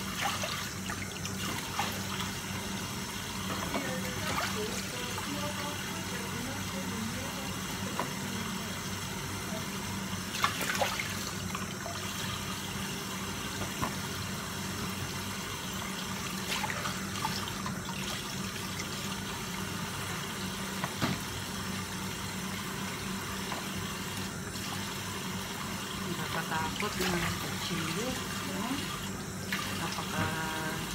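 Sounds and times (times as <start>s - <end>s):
tap running into a sink: 13.5s - 14.1s, 20.0s - 21.4s, 23.4s - 24.9s.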